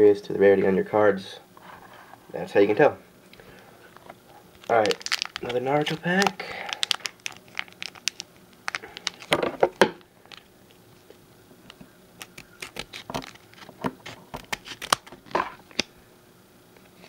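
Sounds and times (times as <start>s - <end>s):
foil pack crinkling: 3.4s - 15.9s.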